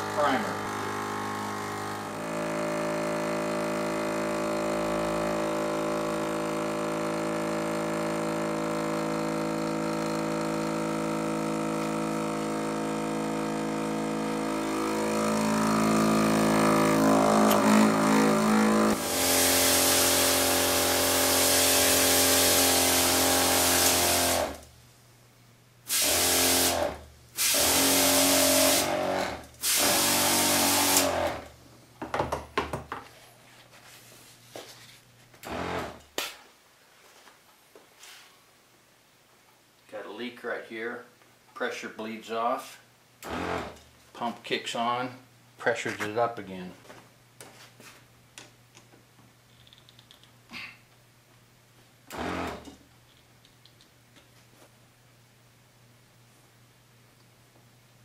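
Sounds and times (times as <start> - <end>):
diaphragm pump whirring: 0.0 - 24.6, 25.9 - 31.6, 35.4 - 36.1, 43.2 - 43.8, 52.1 - 52.8
water gushing with hiss: 19.0 - 24.5.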